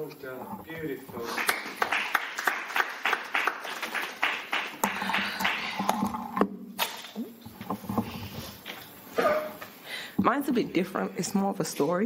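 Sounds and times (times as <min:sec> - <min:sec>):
small group applauding: 0:01.2 - 0:06.0.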